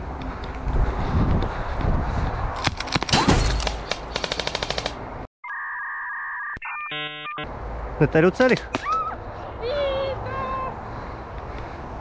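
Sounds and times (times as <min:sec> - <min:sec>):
wind rumbling on the microphone: 0:00.0 - 0:03.0
airsoft gun firing rapid bursts: 0:04.0 - 0:05.0.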